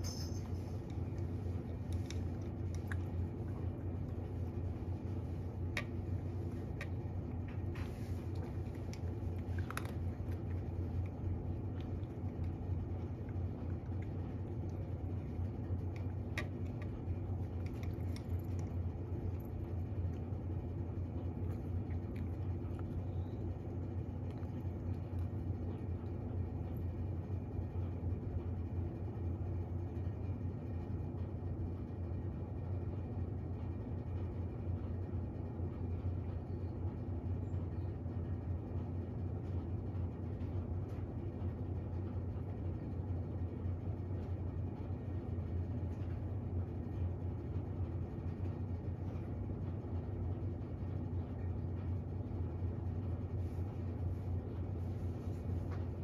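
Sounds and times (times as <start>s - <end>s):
steady low hum: 0.0s - 56.0s
cat chewing: 0.4s - 27.8s.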